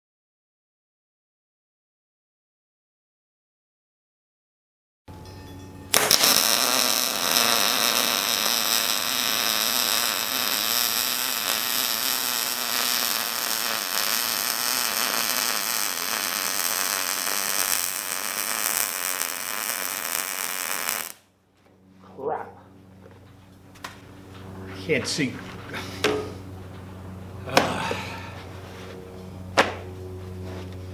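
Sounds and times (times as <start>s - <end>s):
welding arc crackling: 5.9s - 21.2s.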